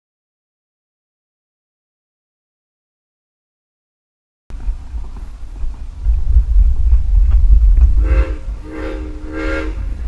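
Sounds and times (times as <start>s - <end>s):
train rumbling on rails: 4.5s - 10.0s
steam whistle toots: 8.0s - 10.0s.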